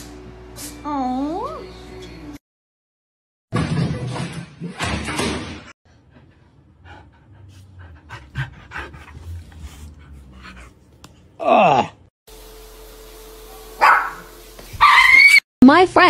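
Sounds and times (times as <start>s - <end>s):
dog panting: 6.0s - 11.0s
dog whining cry: 14.8s - 15.4s.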